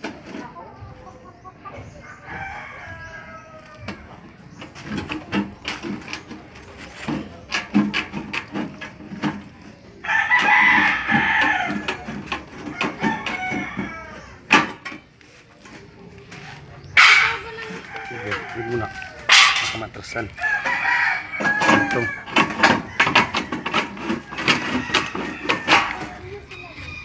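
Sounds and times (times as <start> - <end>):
rooster crowing: 10.0 - 12.1, 12.7 - 14.5, 17.6 - 19.3, 20.4 - 27.0.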